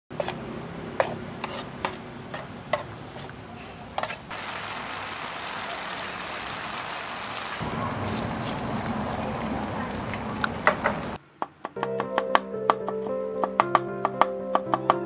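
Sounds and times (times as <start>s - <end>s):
spatula scraping a pan: 0.1s - 0.4s, 1.0s - 2.5s
meat sizzling in a pan: 4.3s - 7.6s.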